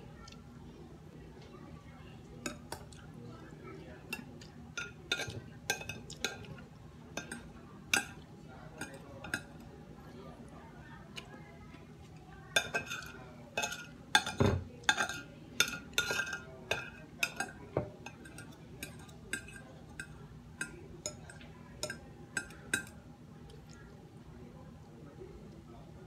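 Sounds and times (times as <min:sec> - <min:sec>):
cutlery clinking on plate: 0:07.2 - 0:08.2, 0:12.6 - 0:23.0.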